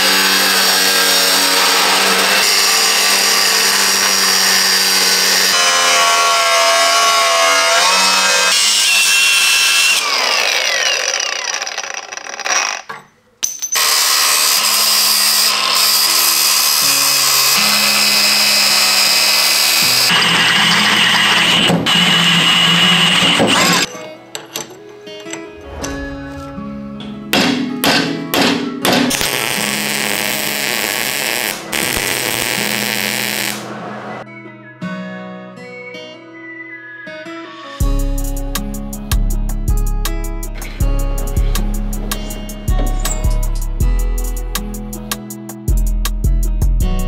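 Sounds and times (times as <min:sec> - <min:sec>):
drill boring through steel: 0:00.0 - 0:12.8, 0:13.8 - 0:23.9
angle grinder cutting steel: 0:00.0 - 0:12.9, 0:13.8 - 0:23.9, 0:29.1 - 0:33.8
background music with bass line: 0:37.8 - 0:47.0.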